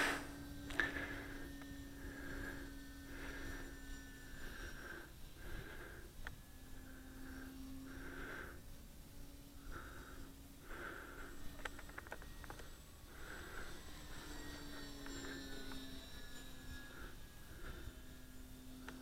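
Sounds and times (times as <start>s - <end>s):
model airplane motor humming: 0.0s - 19.0s.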